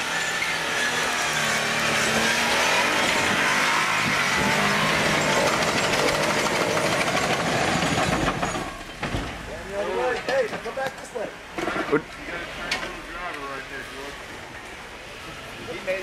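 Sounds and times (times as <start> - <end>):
engine revving hard: 0.0 - 8.2
tyres spinning in dirt: 0.0 - 11.8.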